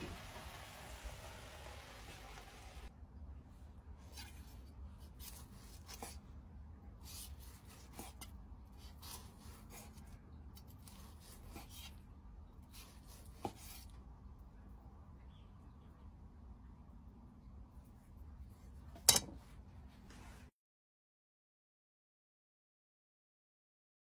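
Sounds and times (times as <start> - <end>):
knife slicing meat: 4.1 - 6.2, 7.0 - 12.0, 12.6 - 14.0.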